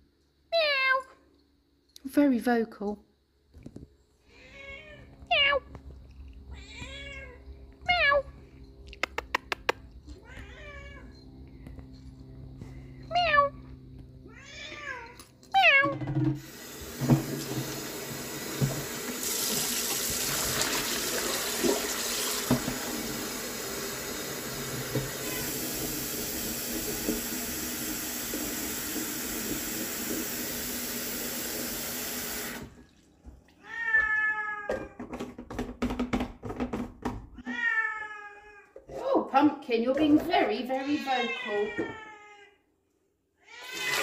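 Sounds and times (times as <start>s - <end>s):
cat meowing: 4.3s - 5.7s, 6.5s - 8.4s, 10.1s - 11.1s, 14.3s - 16.2s, 25.2s - 25.6s, 37.4s - 38.7s, 40.7s - 42.6s, 43.4s - 44.0s
tap running into plastic jug: 16.3s - 23.8s.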